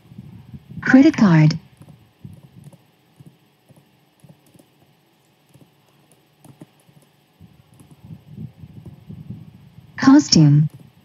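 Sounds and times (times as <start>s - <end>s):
low steady hum: 0.0s - 11.0s
keyboard key taps: 1.8s - 4.7s, 5.5s - 7.1s.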